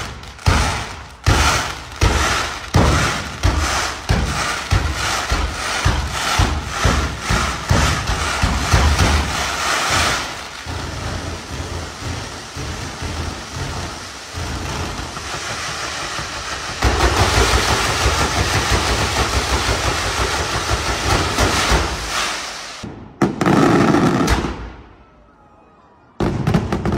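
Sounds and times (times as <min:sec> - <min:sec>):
fireworks crackling and rumbling: 0:00.0 - 0:25.0, 0:26.2 - 0:26.9
loud firework burst: 0:00.0 - 0:25.0, 0:26.2 - 0:26.9.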